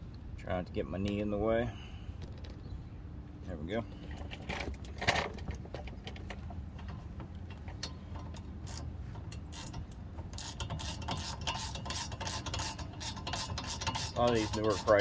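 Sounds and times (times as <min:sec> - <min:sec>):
hand tools clicking on metal: 0:06.2 - 0:15.0
socket ratchet clicking: 0:07.8 - 0:15.0.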